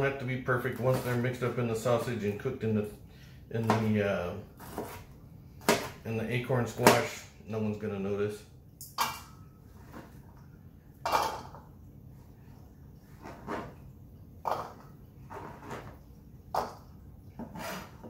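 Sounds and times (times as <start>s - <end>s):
food scraped into bowl: 17.4s - 18.0s.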